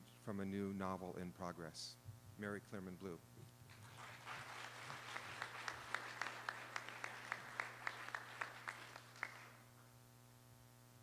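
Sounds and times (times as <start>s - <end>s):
audience applause: 3.7s - 9.6s
sharp claps close by: 3.8s - 9.6s.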